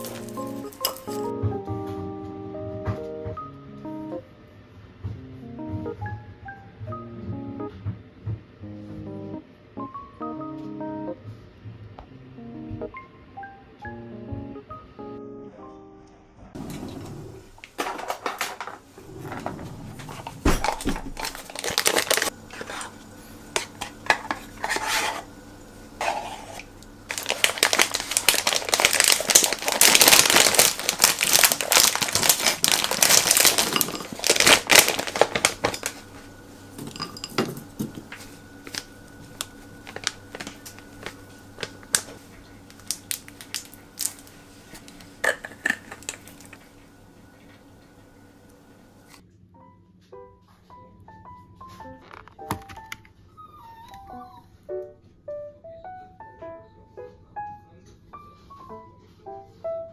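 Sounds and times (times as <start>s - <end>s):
plastic bag rustling: 0.0s - 1.3s, 17.4s - 23.0s, 26.0s - 46.6s
spoon scraping a glass bowl: 23.6s - 25.3s, 26.0s - 26.7s.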